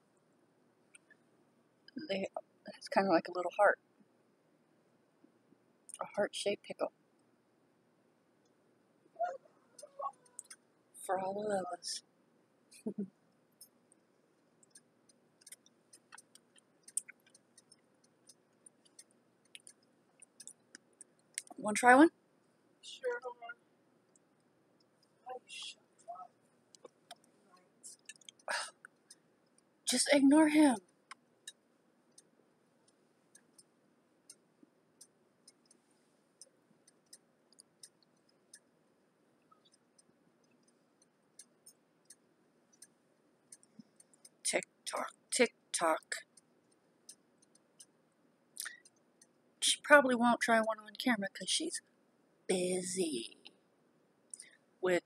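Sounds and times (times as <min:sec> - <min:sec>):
faint sharp clicks: 0:09.8 - 0:10.6
mouth chewing clicks: 0:15.4 - 0:21.6, 0:27.9 - 0:29.1.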